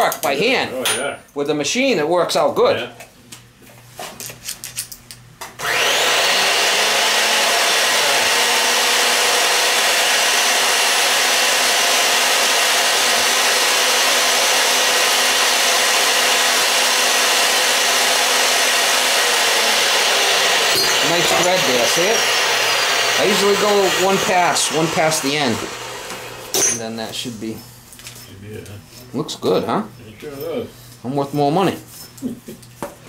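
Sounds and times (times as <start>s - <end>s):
pipe-threading machine motor running: 5.6s - 26.6s.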